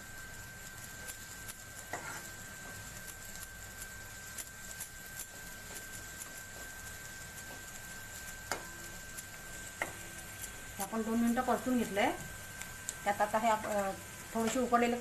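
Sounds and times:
vegetables sizzling in butter: 0.0 - 15.0
ladle scraping a pan: 1.9 - 2.4.

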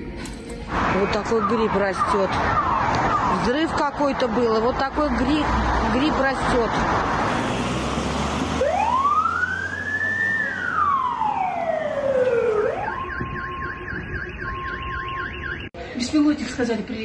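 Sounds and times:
ambulance siren wailing: 0.9 - 4.7, 7.0 - 15.8.

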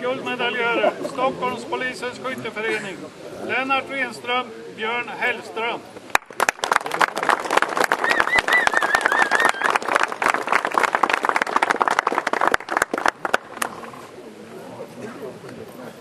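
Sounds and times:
audience clapping: 6.1 - 13.8
high wavering cheer: 8.0 - 9.9.

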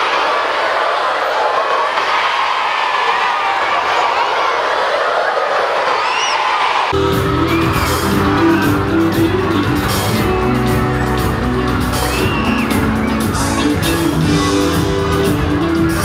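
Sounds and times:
children shouting and whooping: 0.0 - 15.2
amplified band music: 7.0 - 16.0.

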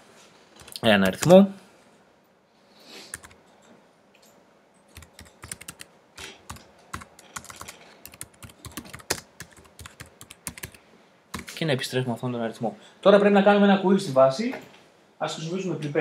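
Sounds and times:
computer keyboard typing: 0.6 - 1.4, 3.1 - 3.4, 4.9 - 11.6.

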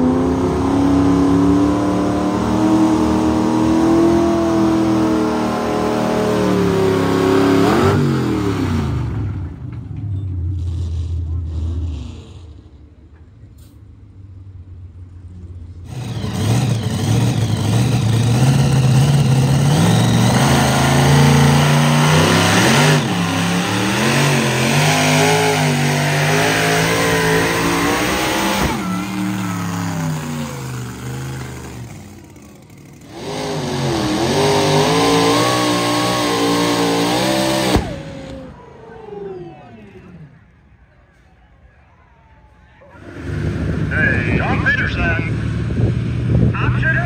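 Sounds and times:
engines running at full throttle: 15.8 - 40.2, 43.0 - 47.0.

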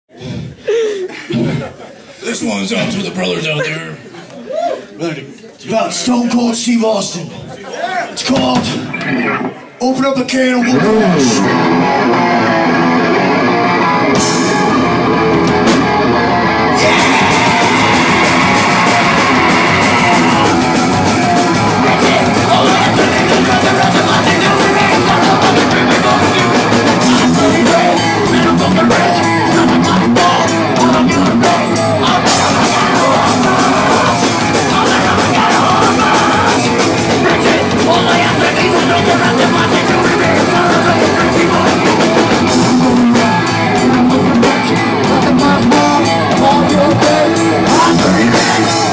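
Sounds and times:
live punk band playing: 8.2 - 9.8, 10.6 - 48.9
electric guitar: 8.6 - 9.8, 10.6 - 48.9
drum kit: 10.8 - 48.9.

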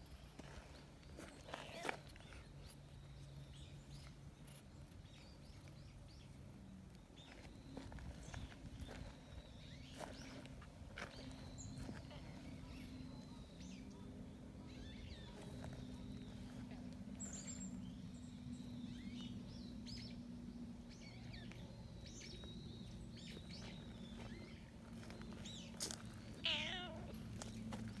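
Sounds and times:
cat meowing: 26.4 - 27.2.

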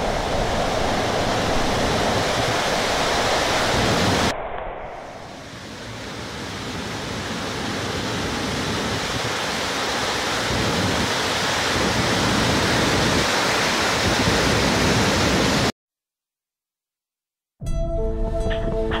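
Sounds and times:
waterfall rushing: 0.0 - 4.3, 5.2 - 15.7.

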